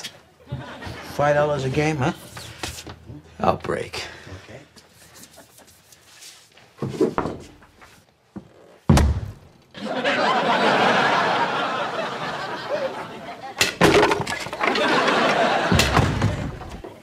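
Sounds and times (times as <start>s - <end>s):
studio audience laughter: 9.8s - 13.6s, 14.5s - 16.8s
pool cue thunking wall: 13.7s - 16.8s.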